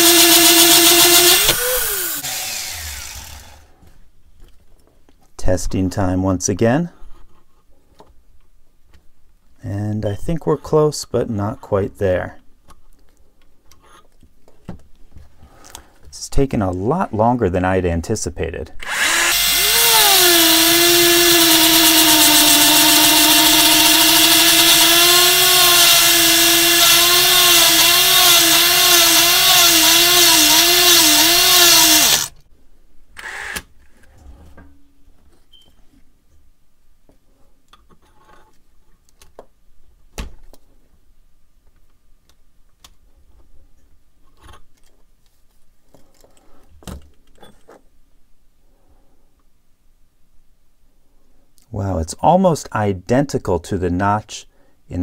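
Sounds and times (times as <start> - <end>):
rotary tool grinding steel: 0.0 - 3.7, 18.8 - 32.4.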